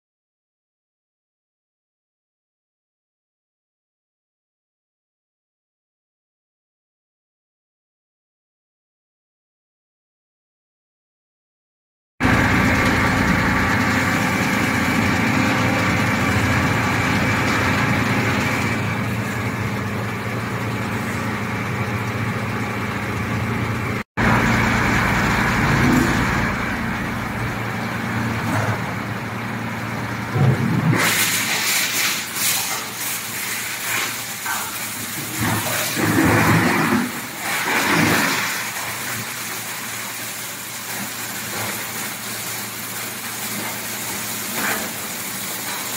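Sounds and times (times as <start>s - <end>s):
granulator machine hum: 12.2s - 45.9s.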